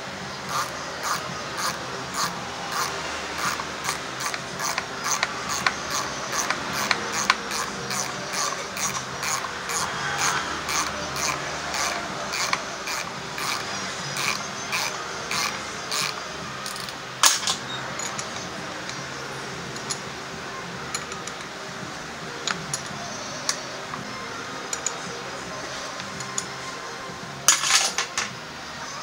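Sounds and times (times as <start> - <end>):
ratchet wrench clicking: 0.4 - 19.1, 22.4 - 24.0, 24.7 - 25.0.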